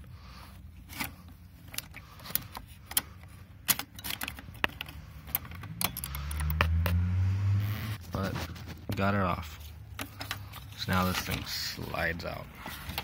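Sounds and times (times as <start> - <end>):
low hum: 5.7 - 8.0.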